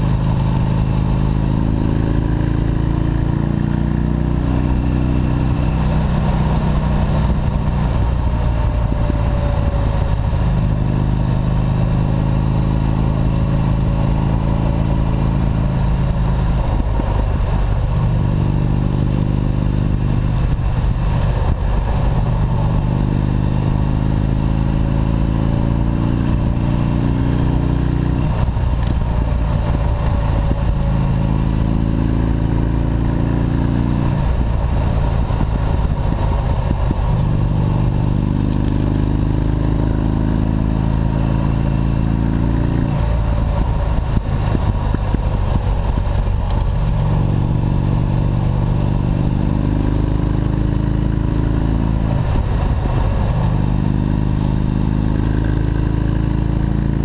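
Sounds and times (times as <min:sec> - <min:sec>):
motorcycle engine revving: 0:00.0 - 0:57.0
wind rush: 0:04.4 - 0:11.2, 0:13.7 - 0:25.2, 0:28.1 - 0:49.0, 0:51.1 - 0:57.0.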